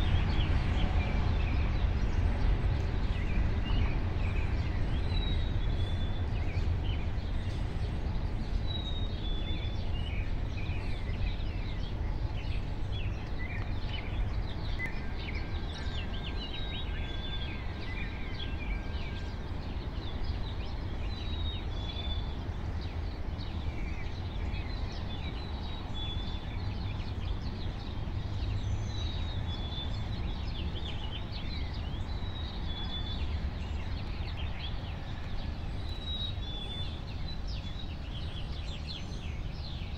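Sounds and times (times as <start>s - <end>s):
steady low rumble: 0.0s - 17.4s
songbirds singing: 0.0s - 39.9s.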